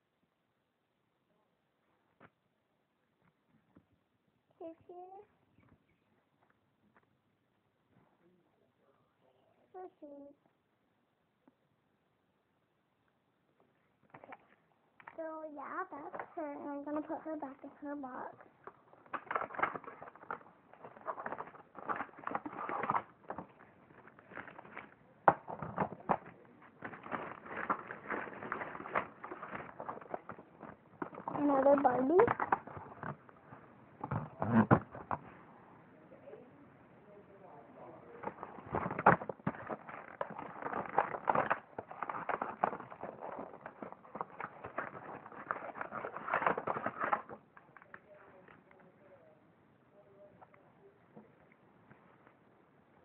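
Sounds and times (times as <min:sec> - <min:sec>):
cardboard box rustling: 0:19.1 - 0:33.3, 0:38.2 - 0:47.5.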